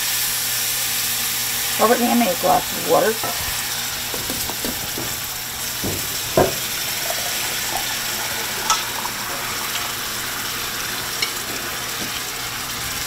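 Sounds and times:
gravy sizzling in skillet: 0:00.0 - 0:13.0
short knocks: 0:04.1 - 0:06.7.

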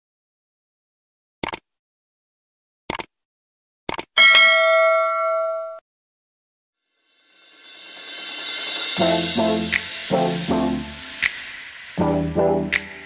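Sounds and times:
mouse clicks: 0:02.9 - 0:03.1
bell ding: 0:04.2 - 0:05.8.

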